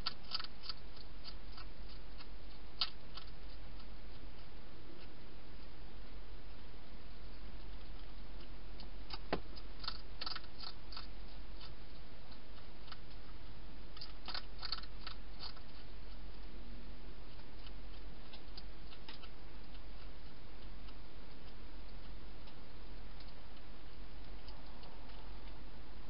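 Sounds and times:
hedgehog crunching food: 0.0 - 25.6
steady low hum: 0.0 - 26.0.

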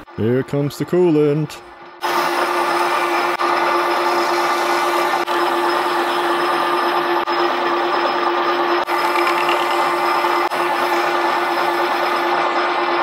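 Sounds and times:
metal lathe humming: 5.1 - 12.9.

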